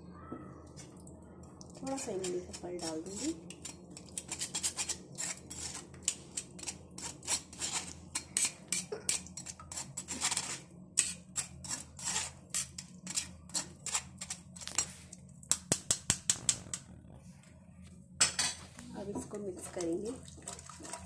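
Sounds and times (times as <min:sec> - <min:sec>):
metal spoon scraping mesh strainer: 0:01.8 - 0:14.9.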